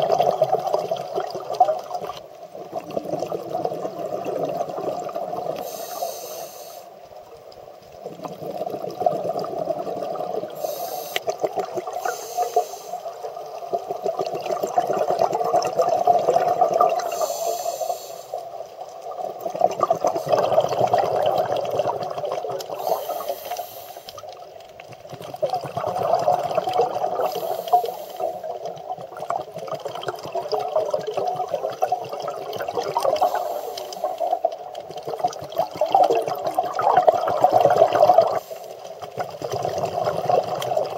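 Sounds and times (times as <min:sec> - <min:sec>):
exhaled air bubbling: 0:00.0 - 0:40.9
regulator inhale hiss: 0:05.5 - 0:07.1, 0:10.5 - 0:13.6, 0:17.0 - 0:18.8, 0:22.7 - 0:24.4, 0:27.2 - 0:28.7, 0:33.1 - 0:34.6, 0:38.3 - 0:39.0.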